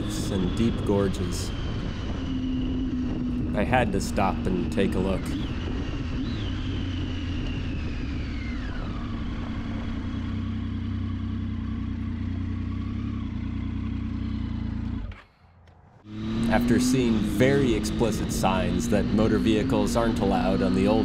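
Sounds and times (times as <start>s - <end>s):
high whine falling in pitch: 0.0s - 10.9s
motorcycle engine humming: 0.0s - 21.0s.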